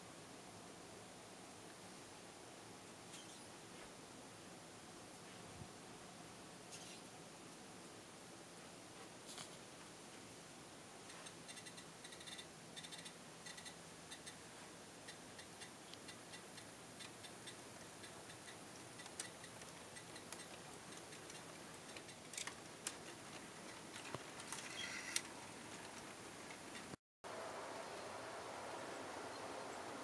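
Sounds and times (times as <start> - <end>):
model train wheels clicking: 15.1 - 26.9.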